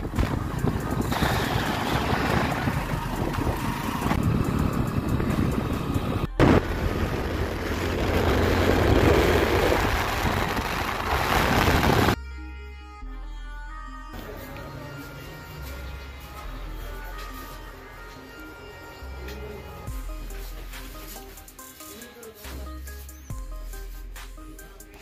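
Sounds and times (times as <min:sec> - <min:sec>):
vehicle engine and road noise: 0:00.0 - 0:12.2
wind on microphone: 0:00.0 - 0:12.2
background music: 0:00.0 - 0:25.0.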